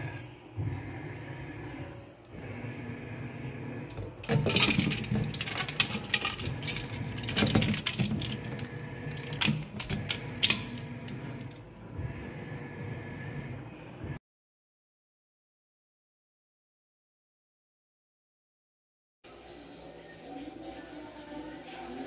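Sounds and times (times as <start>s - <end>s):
metal basin clattering in sink: 4.0s - 11.6s.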